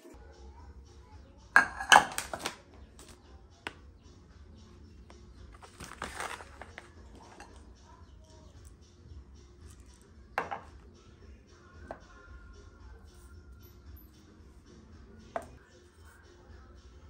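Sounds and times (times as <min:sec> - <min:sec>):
cookware clattering on stone: 0:01.6 - 0:02.6, 0:10.4 - 0:10.7
plastic packet crinkling: 0:05.6 - 0:06.9.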